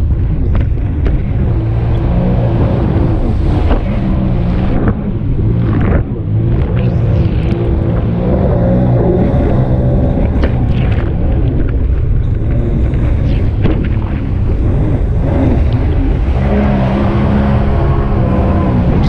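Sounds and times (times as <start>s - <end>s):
jet ski engine running hard: 0.0s - 19.0s
wind rushing on microphone: 0.0s - 19.0s.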